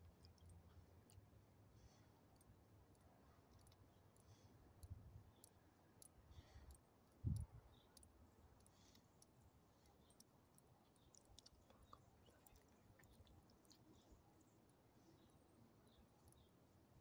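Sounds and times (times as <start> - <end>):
small dog eating treats: 10.9 - 14.4.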